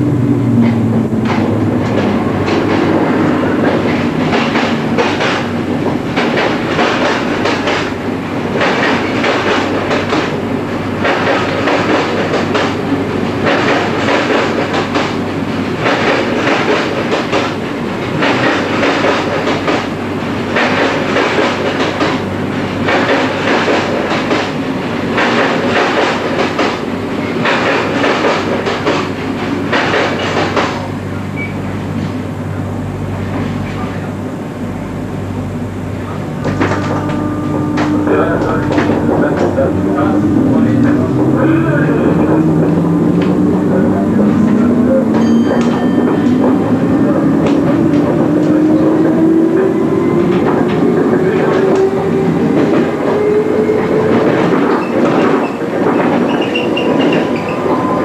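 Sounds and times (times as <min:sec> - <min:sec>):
electric train rumble: 0:00.0 - 0:58.0.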